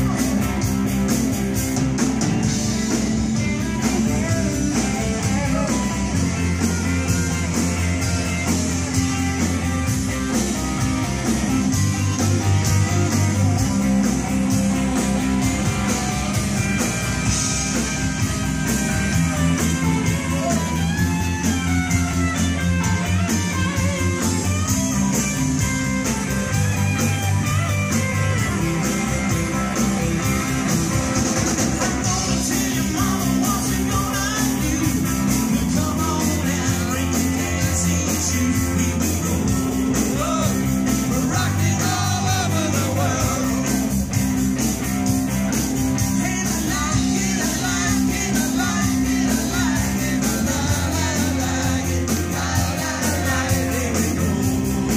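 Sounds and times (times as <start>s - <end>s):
rock band playing: 0.0s - 54.9s
person singing: 32.0s - 39.4s, 46.1s - 54.5s.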